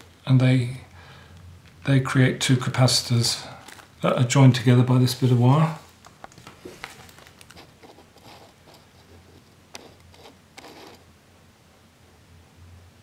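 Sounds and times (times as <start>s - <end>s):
plastic sheet crinkling: 3.5s - 4.4s, 5.0s - 11.0s.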